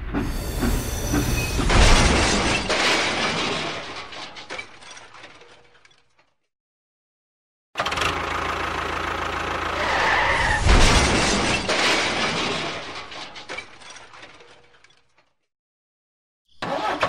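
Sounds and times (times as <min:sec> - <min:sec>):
engine running: 0:07.8 - 0:10.0.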